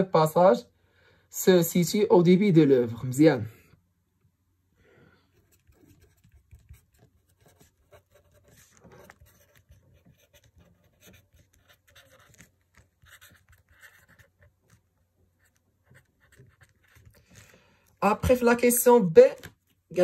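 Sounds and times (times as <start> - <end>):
pen scratching on paper: 5.3 - 17.5.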